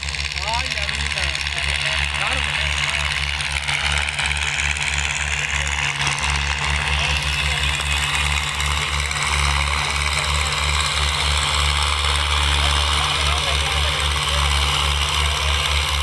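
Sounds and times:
tractor diesel engines running: 0.0 - 16.0.

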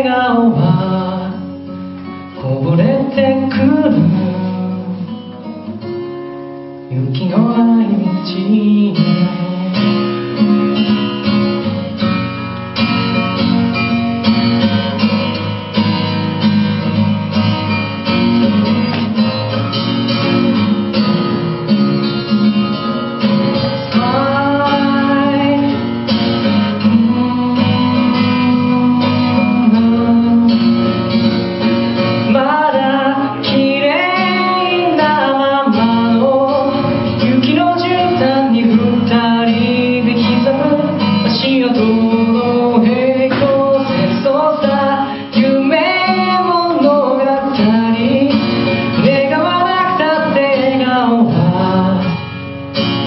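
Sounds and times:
person singing: 0.0 - 5.8, 6.9 - 10.4, 23.2 - 31.4, 32.0 - 52.4
acoustic guitar strumming: 0.0 - 53.0.

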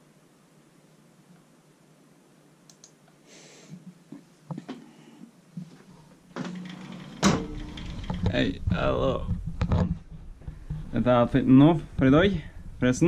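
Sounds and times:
sharp clicks: 2.7 - 3.0.

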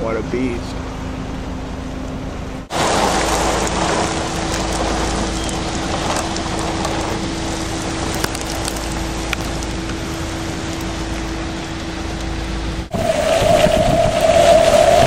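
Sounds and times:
steady low hum: 0.0 - 15.0
heavy rain: 2.7 - 15.0
wind noise: 2.7 - 15.0
raindrop ticks: 2.8 - 12.3.

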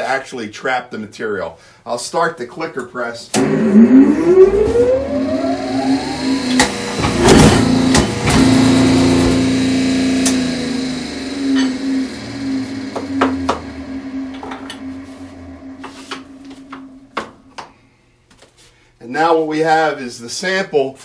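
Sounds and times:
press motor whine and hum: 3.3 - 17.7
sharp clicks and clunks: 6.5 - 8.6, 10.2 - 10.5, 12.9 - 14.9.

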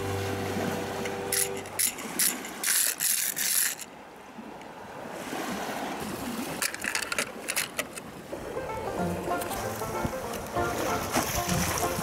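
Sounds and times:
steady outdoor hiss: 0.0 - 4.3
toy car wheels crunching gravel: 1.6 - 3.9.

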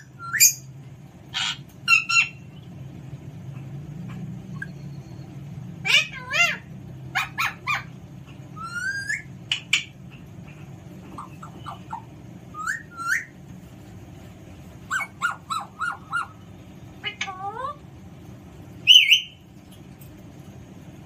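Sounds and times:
parakeet whistling and calling: 0.0 - 0.7, 1.3 - 2.7, 4.1 - 13.4, 14.9 - 17.8, 18.8 - 19.4.

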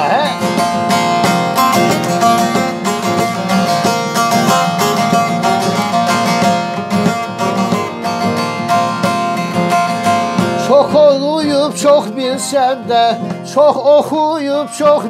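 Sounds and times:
strummed long-necked lute: 0.0 - 15.0.

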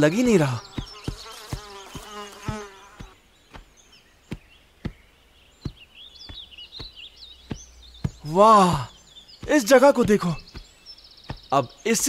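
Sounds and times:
high bird chirps: 0.0 - 12.0
fly buzzing: 0.4 - 3.6
footstep thuds: 0.6 - 12.0.

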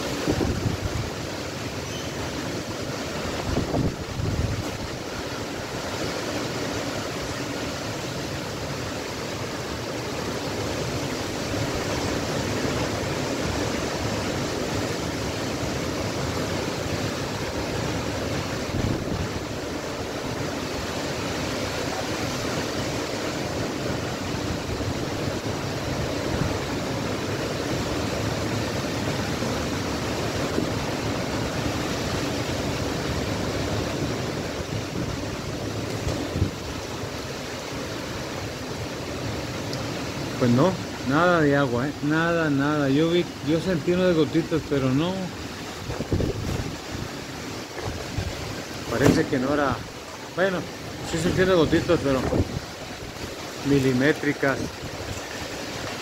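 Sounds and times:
wind rumble on microphone: 0.0 - 6.0, 16.4 - 21.0, 22.8 - 37.2, 45.1 - 49.3, 51.0 - 53.9
strong wind rushing through trees: 0.0 - 56.0.

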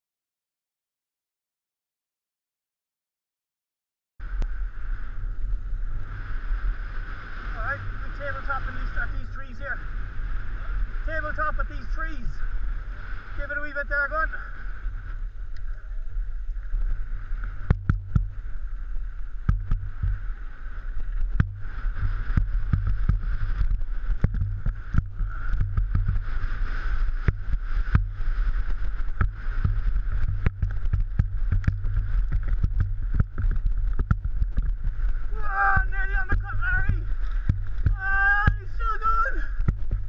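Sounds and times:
wind and riding rumble: 4.2 - 40.0
wheels knocking on stones: 27.2 - 38.6.

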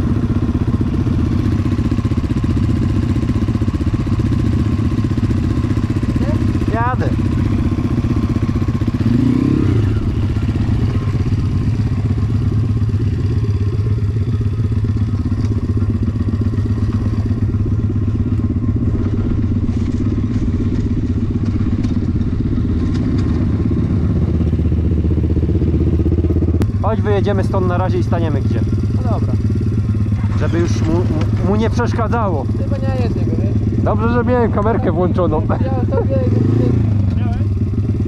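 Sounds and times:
dirt bike engine: 0.0 - 38.0
light rattling clicks: 22.7 - 23.5.

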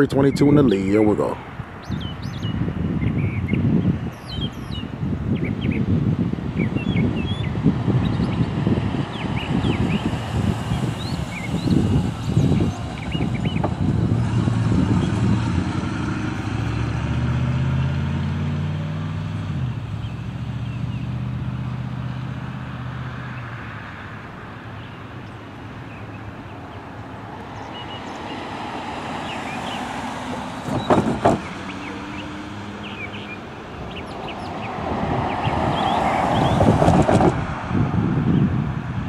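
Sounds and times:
locomotive engines droning: 9.0 - 22.9, 24.0 - 37.1.

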